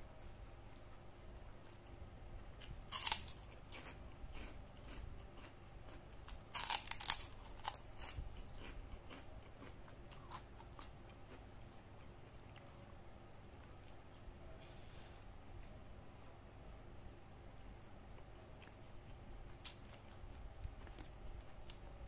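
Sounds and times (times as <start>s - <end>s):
person chewing crunchy food: 2.5s - 12.7s, 18.2s - 21.9s.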